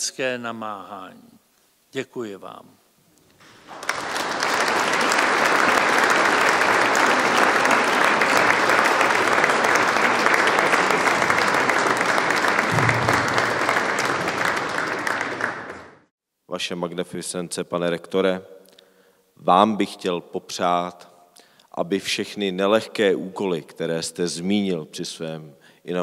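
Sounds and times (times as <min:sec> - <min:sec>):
audience applauding: 0:03.4 - 0:16.1.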